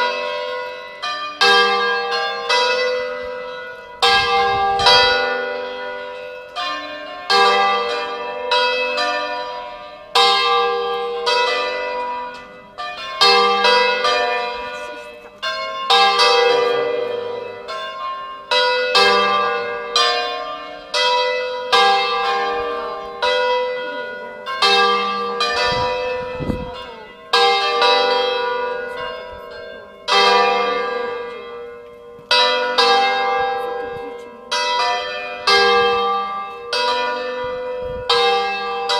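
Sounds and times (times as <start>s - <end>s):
church bells ringing: 0.0s - 38.9s.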